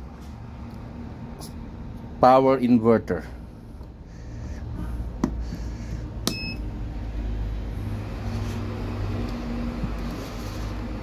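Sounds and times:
steady low hum: 0.0s - 11.0s
short electronic beep: 6.3s - 6.6s.

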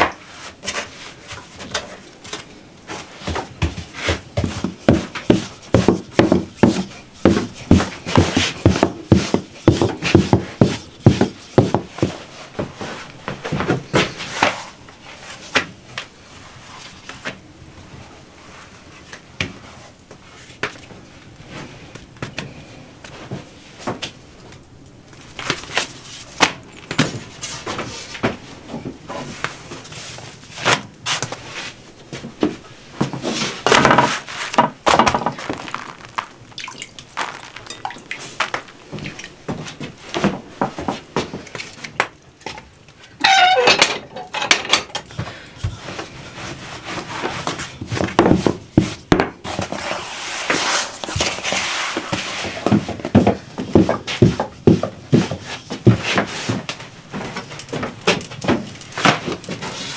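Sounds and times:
firewood clattering: 33.6s - 45.8s.

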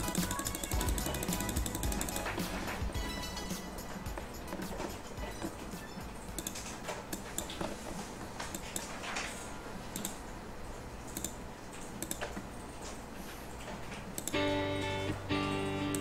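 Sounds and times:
mouse and keyboard clicks: 6.3s - 7.8s, 8.4s - 10.2s, 11.0s - 13.0s.

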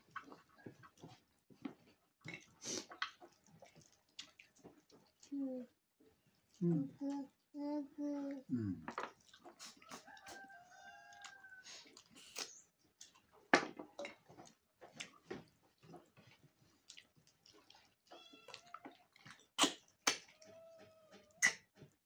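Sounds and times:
animal calling: 19.6s - 21.6s.

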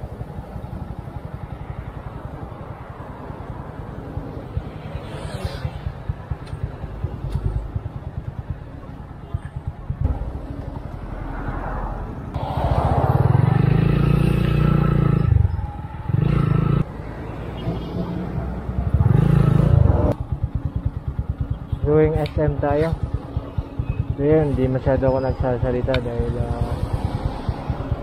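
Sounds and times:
motorcycle engine revving: 12.3s - 16.9s, 18.3s - 28.0s.

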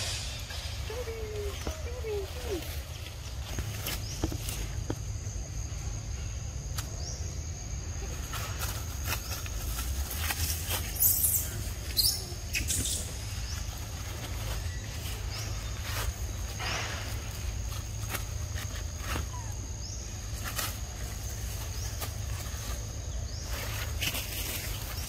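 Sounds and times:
low rumble: 0.0s - 6.6s
undergrowth rustling: 0.0s - 25.0s.

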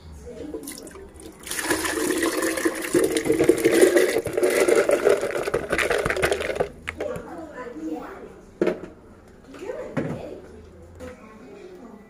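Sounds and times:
water pouring into blender jar: 0.6s - 7.0s
beans clicking against jar: 1.5s - 7.0s.

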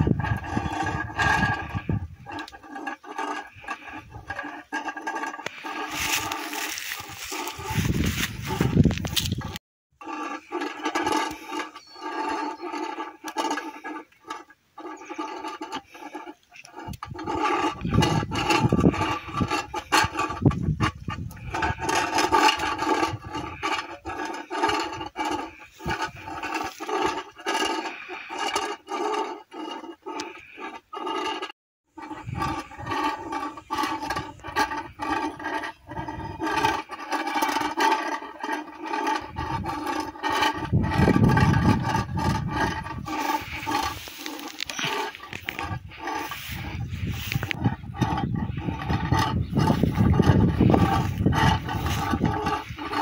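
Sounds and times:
wind rumble on microphone: 0.0s - 2.8s, 5.5s - 9.6s, 16.8s - 27.2s, 32.0s - 37.0s, 39.0s - 53.0s
tin-can friction noisemaker rasping: 0.0s - 53.0s.

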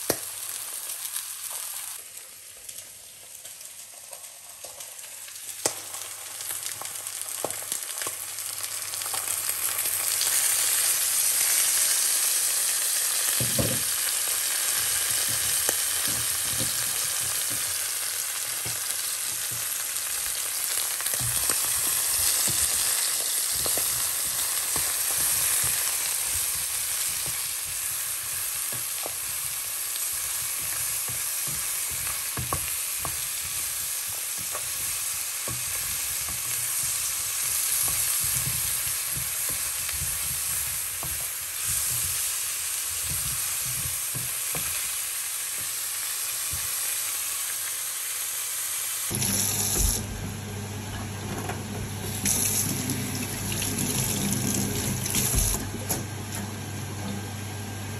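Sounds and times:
vegetables sizzling in a frying pan: 0.0s - 57.9s
wooden spatula scraping and knocking: 21.2s - 44.9s
tap running into a metal sink: 51.2s - 56.0s.

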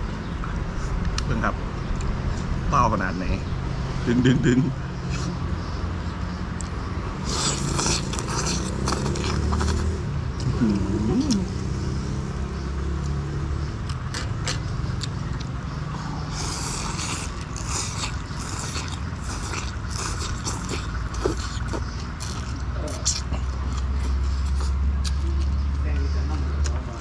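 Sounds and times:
steady low rumble: 0.0s - 12.7s
chewing noises: 6.6s - 11.7s, 13.0s - 27.0s
person slurping noodles: 7.2s - 9.8s, 16.3s - 21.8s.

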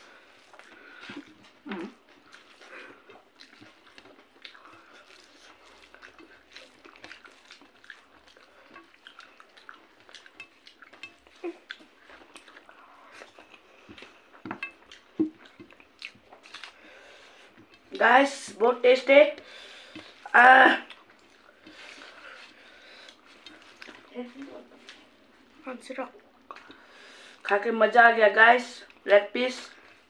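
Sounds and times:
chewing with lip smacks: 0.0s - 27.7s
fingers mixing rice on a plate: 0.1s - 18.0s, 19.4s - 25.5s.

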